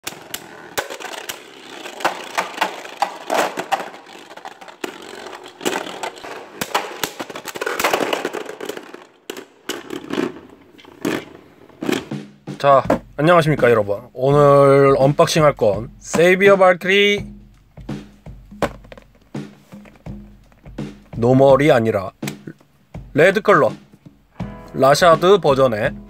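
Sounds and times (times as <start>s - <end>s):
sharp plastic clacks: 0.0s - 12.2s
spinning tops scraping whir: 0.0s - 12.2s.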